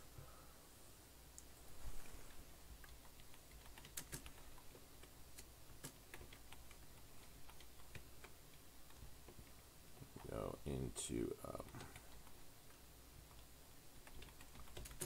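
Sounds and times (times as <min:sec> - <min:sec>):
keyboard keystrokes: 0:02.8 - 0:09.4, 0:13.3 - 0:15.0.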